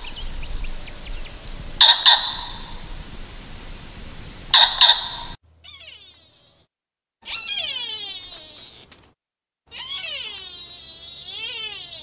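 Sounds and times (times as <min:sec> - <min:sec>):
meow-like animal calls: 0:04.6 - 0:08.9, 0:09.7 - 0:12.0.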